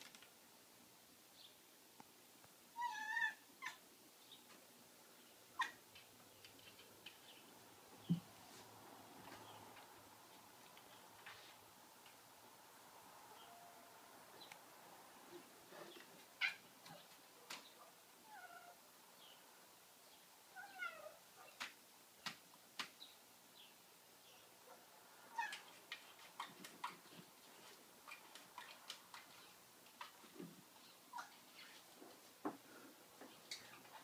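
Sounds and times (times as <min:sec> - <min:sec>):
cat chirping and meowing: 0:02.8 - 0:03.8, 0:05.6 - 0:05.8, 0:16.4 - 0:16.7, 0:18.2 - 0:18.8, 0:20.5 - 0:21.2, 0:25.3 - 0:25.8.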